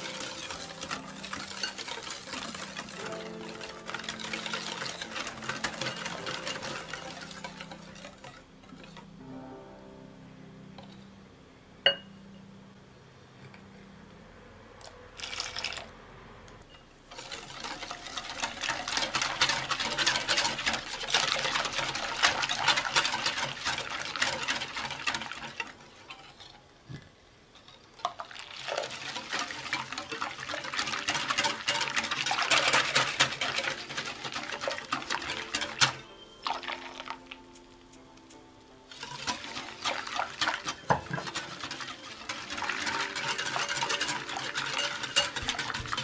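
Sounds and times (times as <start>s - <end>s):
whisk beating liquid in glass bowl: 0.0s - 9.0s, 17.1s - 26.4s, 28.3s - 37.1s, 38.9s - 46.0s.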